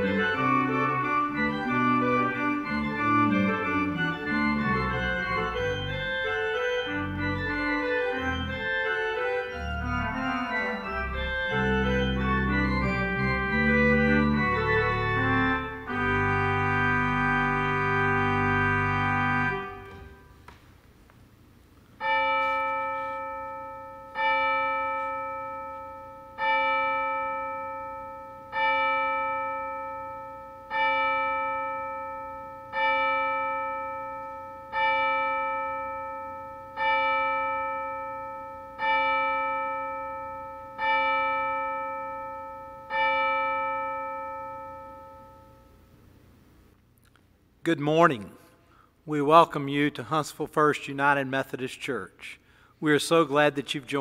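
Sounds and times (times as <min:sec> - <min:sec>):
church bell tolling: 0:00.0 - 0:20.3, 0:22.0 - 0:45.8.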